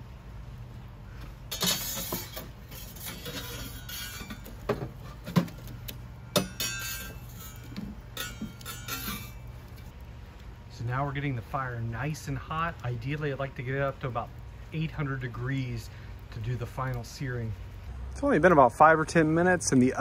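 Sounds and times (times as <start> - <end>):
metal tools knocking and scraping: 1.5 - 5.6, 6.3 - 9.4.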